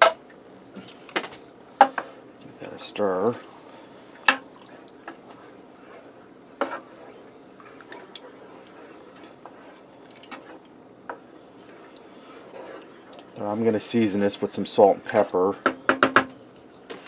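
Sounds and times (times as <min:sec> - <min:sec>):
soup sloshing while stirred: 0:03.2 - 0:15.6
spoon knocking against pot: 0:15.6 - 0:16.3.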